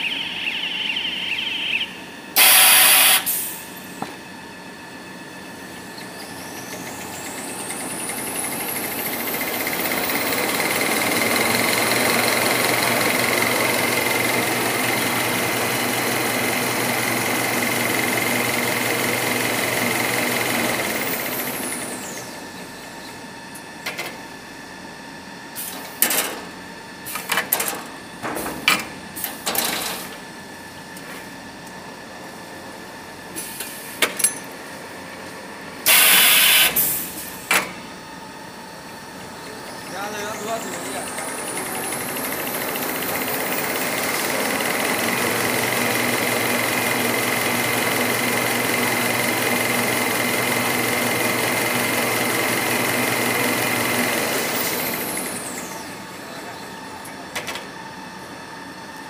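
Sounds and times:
machine whine: 0.0 - 59.0
short sharp mechanical sounds: 2.4 - 3.5.

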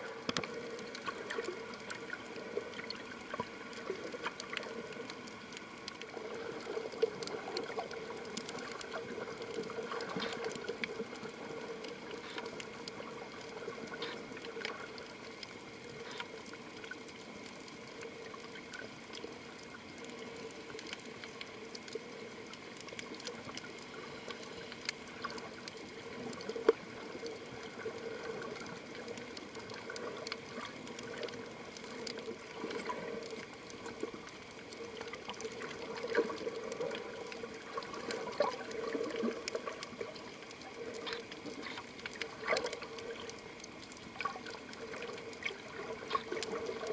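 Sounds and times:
muffled underwater noise: 0.0 - 46.9
small clicks: 0.1 - 46.9.

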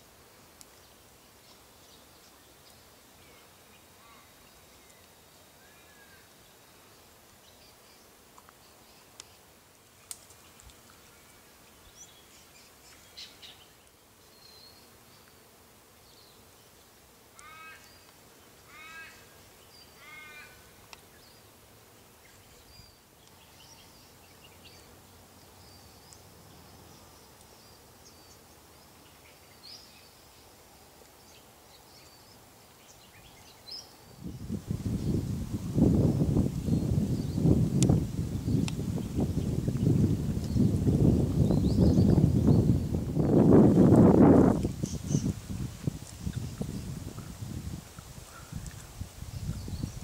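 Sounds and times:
raven calling: 17.4 - 17.9, 18.7 - 19.3, 20.0 - 20.7
small birds chirping: 22.2 - 30.5, 36.0 - 43.0, 44.4 - 50.0.

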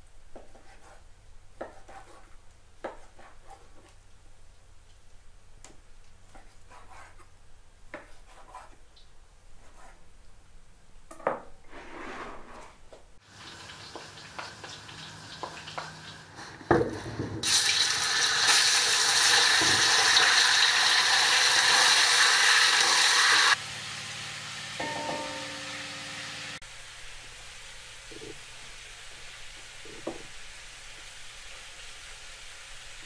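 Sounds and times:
meat sizzling in a pot: 13.2 - 33.0.

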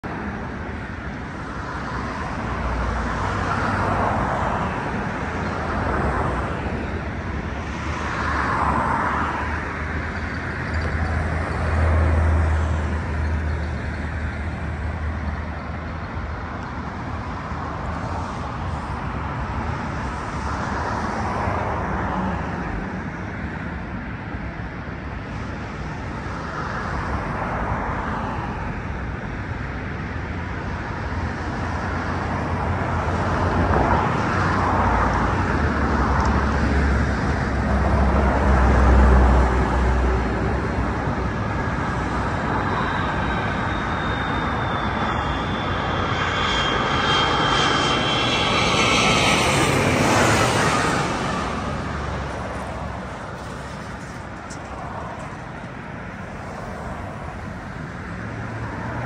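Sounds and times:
vehicles passing: 0.0 - 24.6, 31.2 - 59.0
freeway traffic: 0.0 - 59.0
low drone: 36.4 - 58.7.

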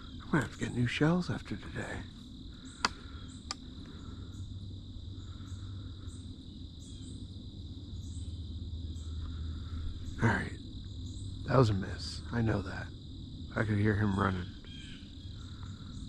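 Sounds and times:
insect chorus drone: 0.0 - 16.0
sharp clicks: 2.8 - 3.6.

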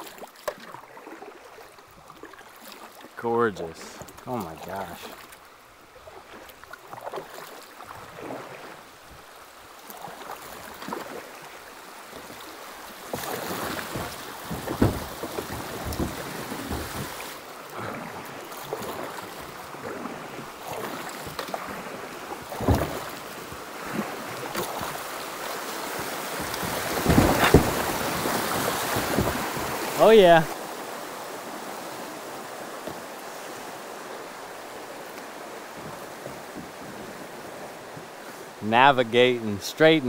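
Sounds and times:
water rushing and splashing: 0.0 - 40.0
sharp knocks: 13.9 - 17.1.

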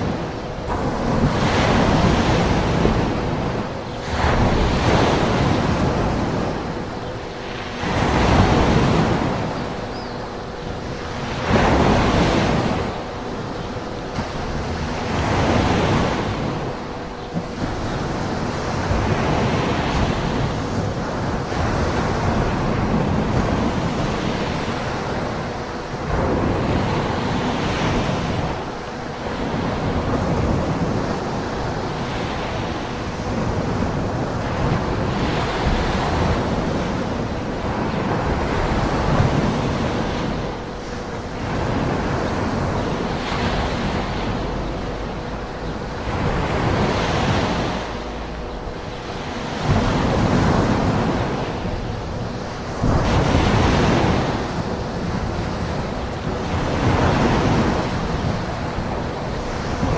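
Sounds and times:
waves breaking: 0.0 - 59.9.

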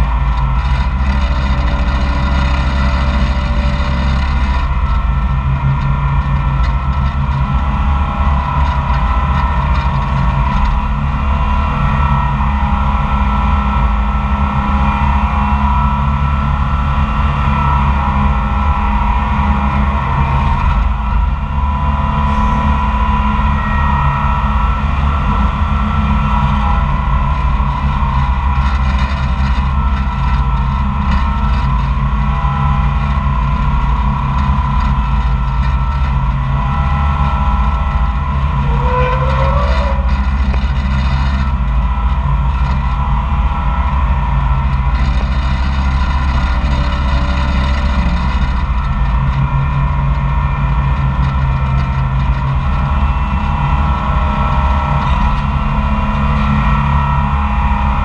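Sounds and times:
dragline engine running: 0.0 - 58.0
machinery squeal: 21.6 - 26.9, 36.7 - 41.6
winches working: 38.3 - 41.6.

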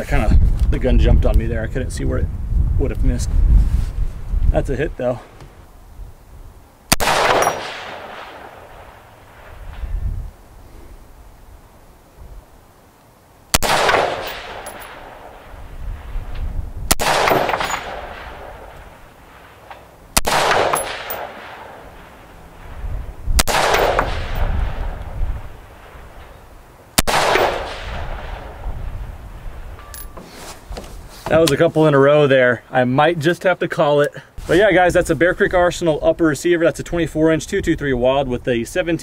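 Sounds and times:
rifle shots with rolling echo: 6.9 - 9.9, 13.5 - 16.2, 16.9 - 22.8, 23.4 - 29.7.

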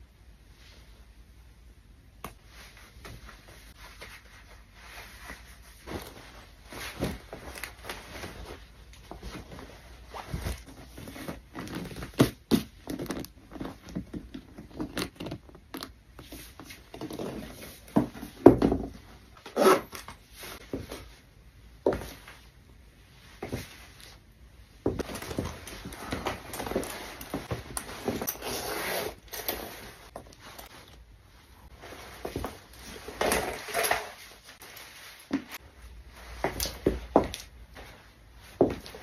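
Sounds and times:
boots rustling and scraping: 2.4 - 15.1, 21.8 - 22.5, 23.2 - 24.2, 24.8 - 39.0.

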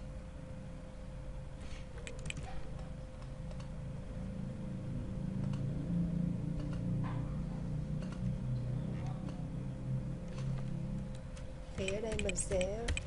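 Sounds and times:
low background hum: 0.0 - 13.0
computer mouse clicks: 2.0 - 2.5, 3.2 - 3.7, 5.4 - 5.7, 6.6 - 6.9, 8.0 - 8.3, 11.8 - 13.0.

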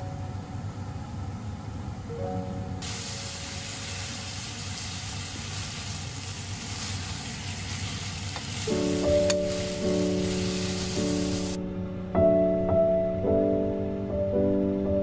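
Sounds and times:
soft background music: 0.0 - 4.7, 8.5 - 15.0
food sizzling in a frying pan: 2.8 - 11.6.

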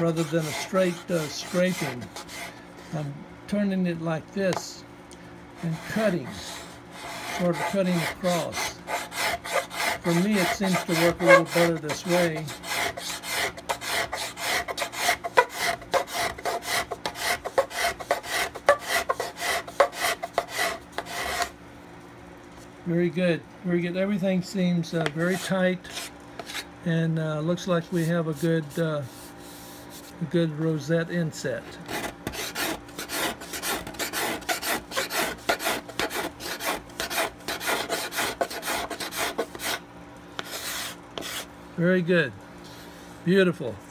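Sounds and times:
steel scraper shaving wood: 0.0 - 2.6, 5.6 - 21.5, 31.9 - 39.8, 40.4 - 41.5.

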